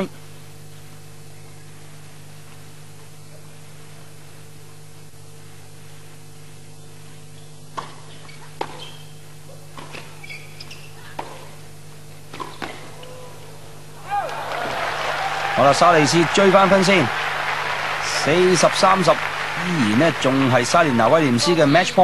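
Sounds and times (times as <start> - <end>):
shoe squeaks: 6.8 - 11.5
racket hitting tennis ball: 7.7 - 10.2, 11.1 - 11.6, 12.3 - 13.0.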